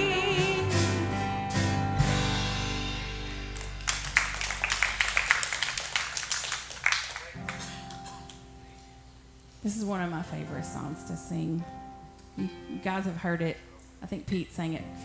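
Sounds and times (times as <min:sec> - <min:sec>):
band chord ringing: 0:00.0 - 0:03.9
people clapping: 0:03.5 - 0:08.5.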